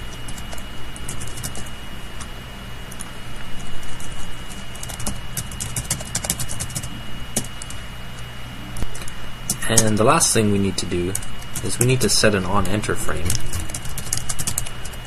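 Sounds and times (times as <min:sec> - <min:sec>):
low electrical hum: 0:00.0 - 0:15.0
keyboard typing: 0:00.1 - 0:01.7, 0:04.0 - 0:07.8, 0:10.8 - 0:15.0.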